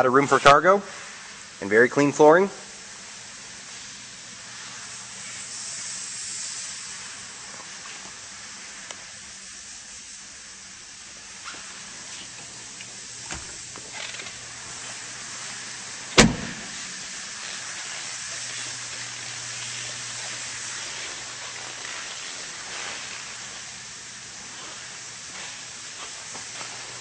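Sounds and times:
steady hiss: 0.0s - 27.0s
car door shutting: 13.3s - 14.0s, 16.2s - 17.0s.

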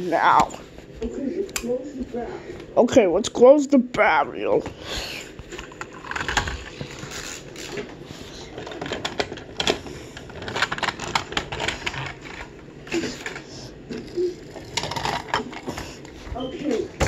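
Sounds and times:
toy cars and wooden trains clicking: 8.5s - 15.8s.

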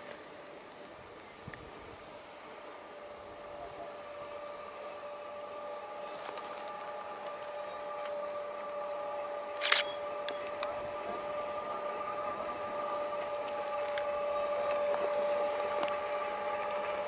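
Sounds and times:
diesel locomotive engine whine: 0.0s - 17.0s.

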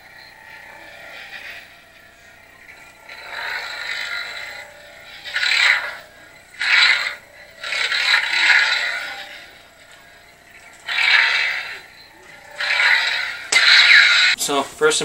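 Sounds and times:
lightsaber blade hum: 0.0s - 14.4s
toy lightsaber swooshes: 2.7s - 14.4s.

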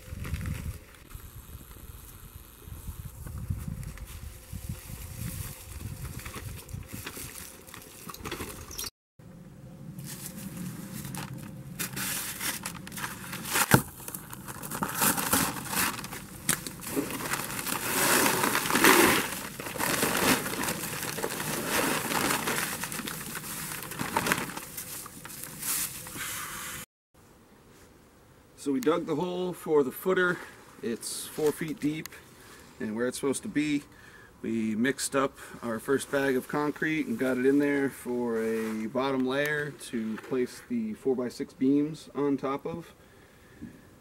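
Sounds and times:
paper sack crinkling: 3.9s - 8.8s, 10.0s - 26.2s
dry mix pouring: 11.1s - 25.0s.

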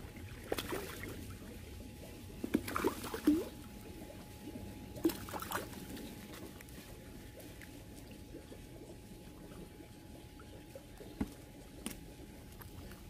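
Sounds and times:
fish splashing and thrashing: 0.0s - 13.0s.

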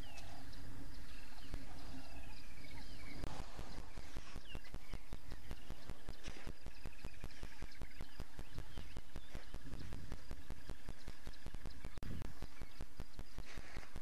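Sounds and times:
birds chirping: 0.0s - 14.0s
rapid sharp clicks: 3.2s - 14.0s.

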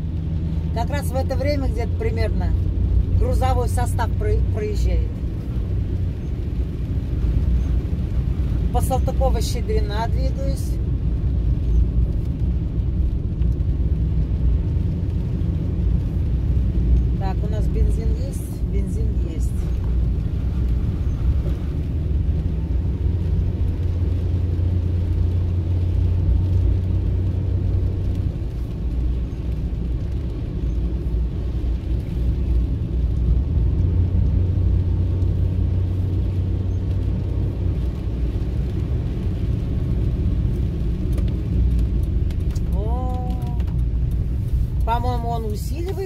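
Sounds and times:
car interior rumble: 0.0s - 46.0s
tyres hissing on wet road: 10.8s - 45.8s.

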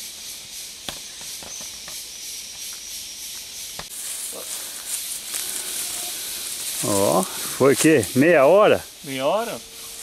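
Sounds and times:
insects hissing: 0.0s - 10.0s.

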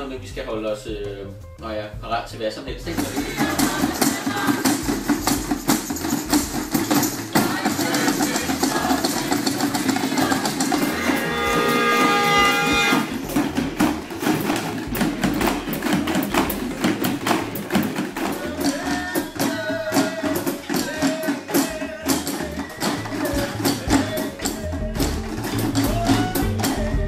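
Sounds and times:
cajon: 2.7s - 27.0s
hand drums struck with sticks: 2.9s - 27.0s
held tones: 10.8s - 13.4s.

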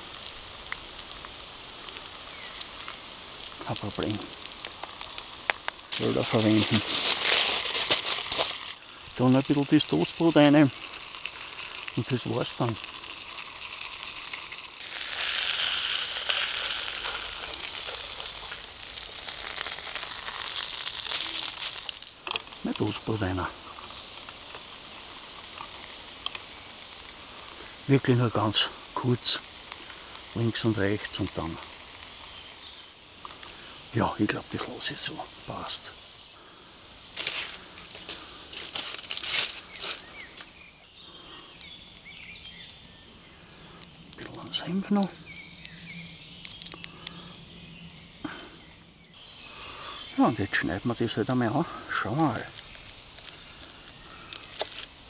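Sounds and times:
food sizzling in oil: 0.0s - 23.1s, 23.8s - 36.2s
packaging crinkling and rustling: 1.1s - 27.6s, 37.0s - 40.6s, 46.4s - 47.2s, 52.5s - 55.0s
small birds chirping: 1.7s - 55.0s.

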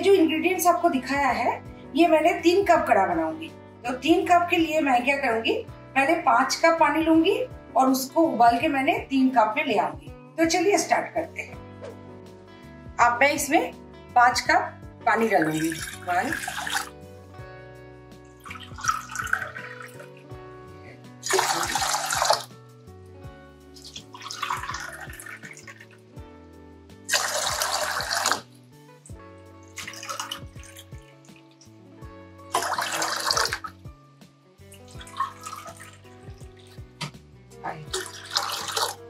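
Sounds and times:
background music: 0.0s - 39.0s
water splashing into a metal pot: 15.2s - 16.9s, 18.4s - 20.2s, 21.2s - 22.6s, 23.8s - 26.1s, 27.1s - 28.5s, 29.6s - 31.8s, 32.5s - 33.8s, 34.7s - 37.1s, 37.8s - 39.0s.

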